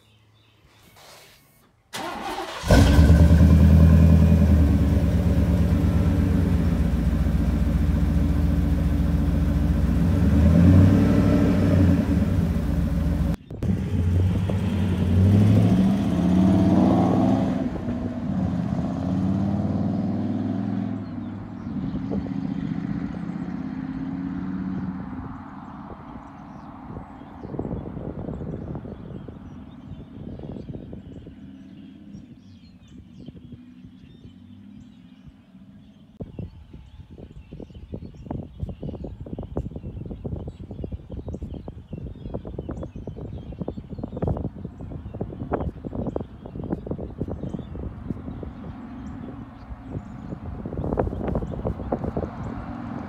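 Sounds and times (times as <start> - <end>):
engine fast idle: 2.0 - 5.8
truck exhaust driving past: 2.0 - 26.2.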